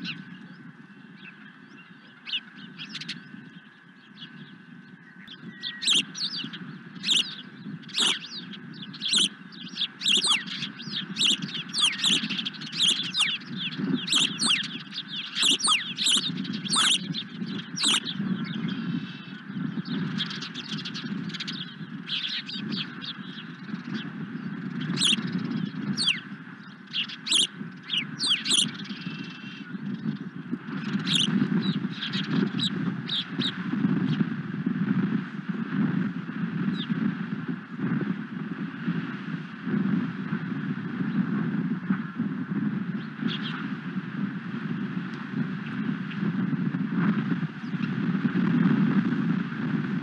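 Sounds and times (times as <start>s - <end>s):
osprey whistled chirps: 5.2s - 18.2s, 24.9s - 26.3s, 27.0s - 29.6s, 31.0s - 31.3s
low background rumble: 5.8s - 38.3s.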